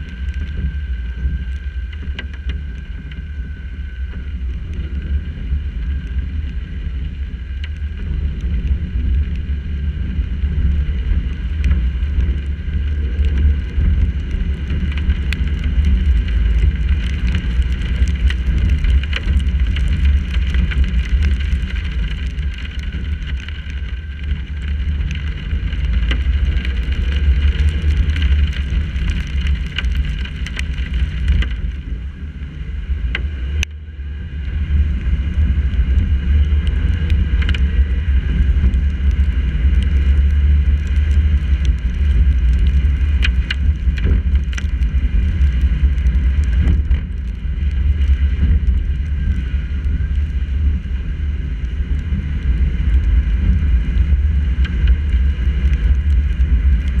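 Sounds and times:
road and wind rumble: 0.0s - 57.0s
raindrops ticking on housing: 10.5s - 33.8s, 34.4s - 50.9s.

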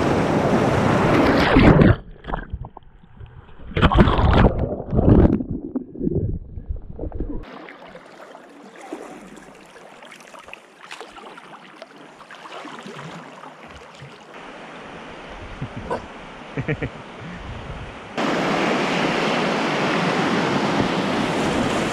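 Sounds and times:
muffled underwater churning and bubbling: 1.2s - 9.8s
paddle splashes: 7.4s - 15.1s
river water rushing: 7.4s - 17.2s, 18.1s - 21.9s.

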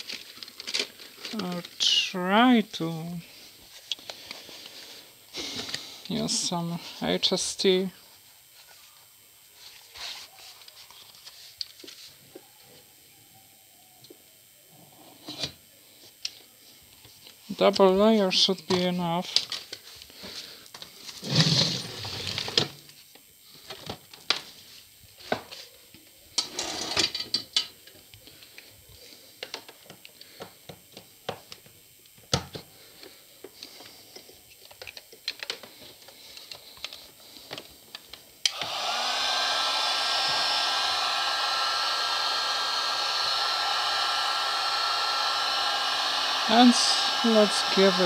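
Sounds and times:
small parts clicking and rustling: 0.0s - 1.8s, 33.0s - 38.2s
hot-air gun fan hiss and whine: 0.0s - 48.0s.

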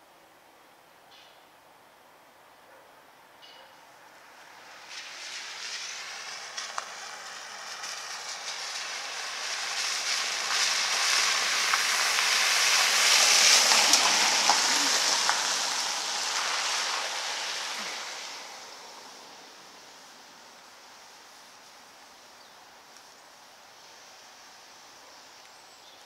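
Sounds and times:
car tyres swishing through water: 4.3s - 21.9s.

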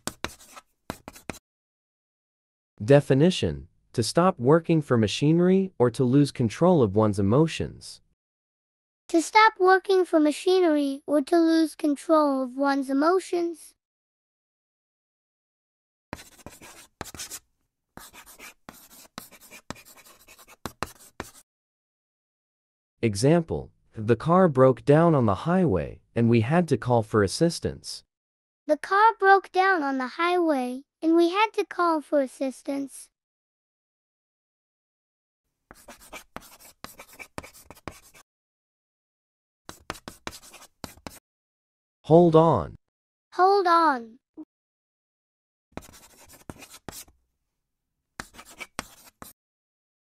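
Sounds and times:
marker pen scratching on board: 0.0s - 1.4s, 16.2s - 21.4s, 35.7s - 38.2s, 39.7s - 41.2s, 45.8s - 47.2s, 48.2s - 49.4s
marker pen tapping: 0.0s - 1.4s, 39.7s - 41.2s, 45.8s - 47.1s, 48.2s - 49.3s.

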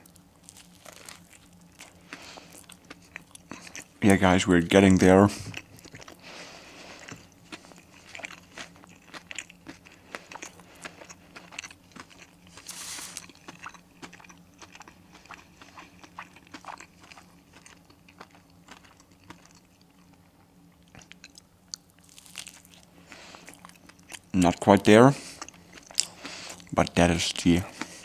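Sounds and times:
crispy food crunching: 0.0s - 28.0s
faint low hum: 0.0s - 28.0s.

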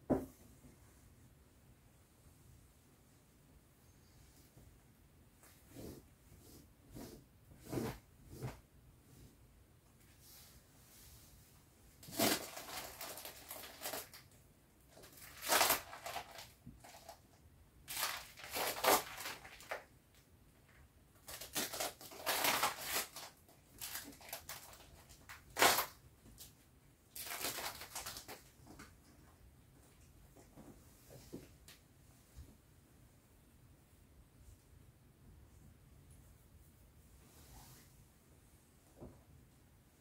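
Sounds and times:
vinyl crinkling and rustling: 12.0s - 19.9s, 20.7s - 29.3s.

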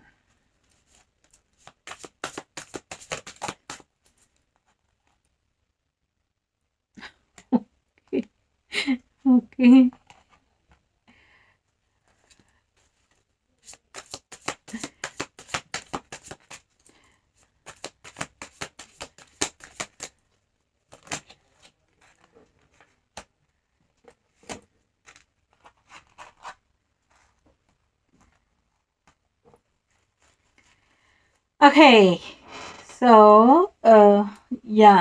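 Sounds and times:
cards shuffling: 0.6s - 4.4s, 12.1s - 20.2s, 20.9s - 23.3s, 24.3s - 27.3s.

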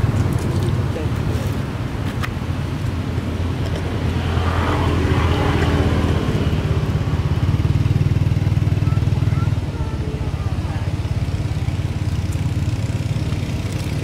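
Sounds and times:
small engine running: 4.3s - 14.0s.

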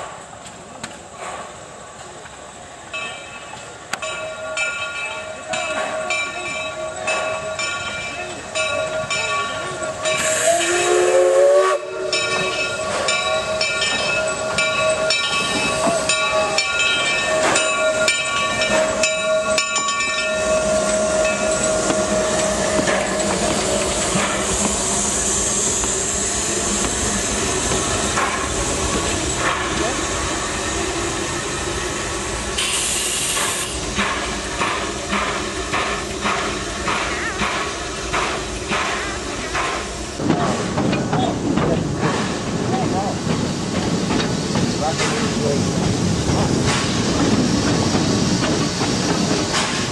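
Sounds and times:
steam locomotive exhaust chuffs: 3.6s - 49.9s
steam hissing: 5.3s - 49.9s
steam whistle blasts: 10.1s - 12.5s.

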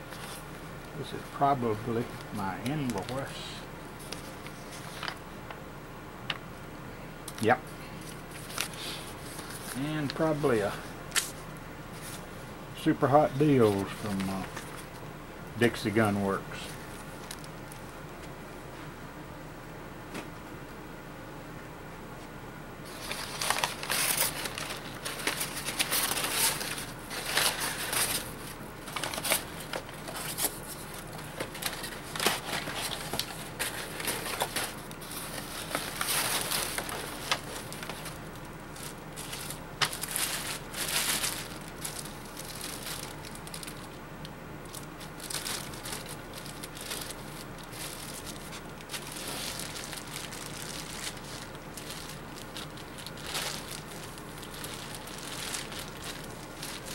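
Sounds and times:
paper and plastic crinkling: 0.0s - 5.2s, 7.4s - 12.2s, 13.0s - 15.0s, 22.9s - 44.0s, 44.6s - 56.9s.

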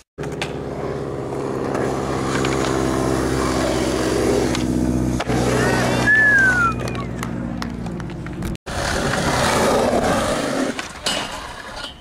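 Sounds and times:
skateboard wheels rolling on concrete: 0.0s - 12.0s
short falling whistle-like tone: 6.0s - 7.1s.

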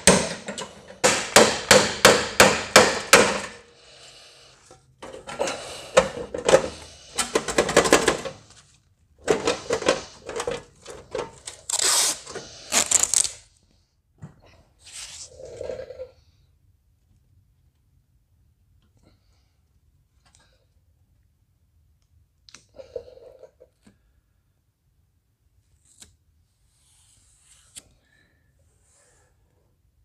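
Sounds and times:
hammer striking sheet metal: 0.0s - 3.6s
metal knocking and scraping: 0.0s - 3.6s, 4.7s - 8.6s, 9.2s - 11.5s.

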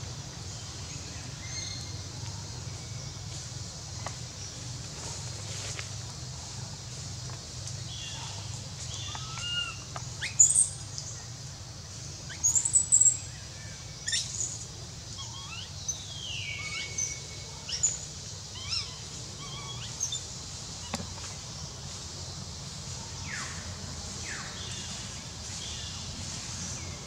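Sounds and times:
animal chirps and whistled calls: 8.9s - 10.8s, 14.0s - 21.0s.

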